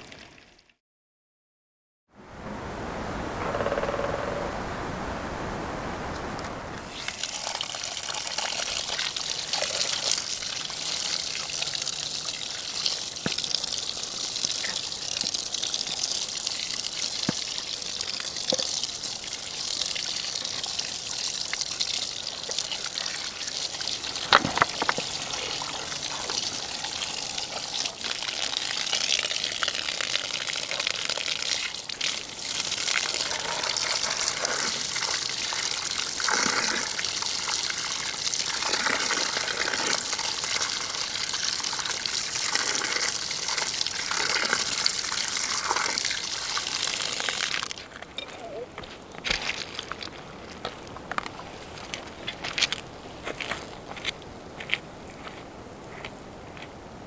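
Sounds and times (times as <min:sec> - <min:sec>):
water running from hose tap: 0:06.9 - 0:47.9.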